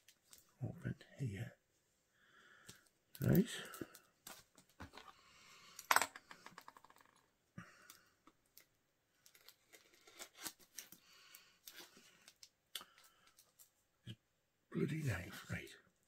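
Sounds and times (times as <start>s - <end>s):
packaging being torn open: 9.2s - 11.0s
packaging rustling and crinkling: 9.2s - 13.7s.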